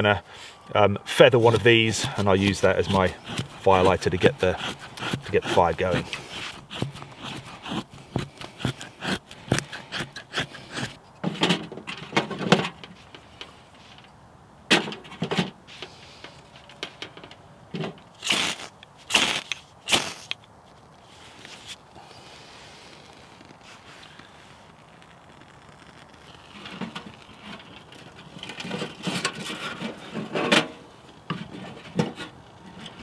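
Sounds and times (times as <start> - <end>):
knife scraping wood: 1.1 - 11.0, 18.2 - 20.4.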